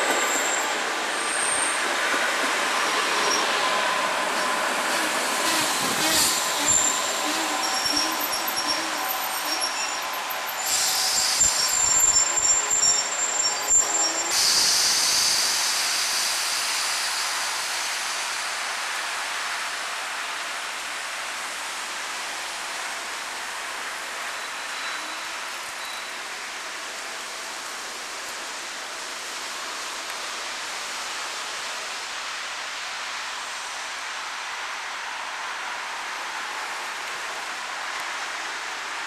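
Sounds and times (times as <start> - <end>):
electric train pulling away: 0.0 - 20.3.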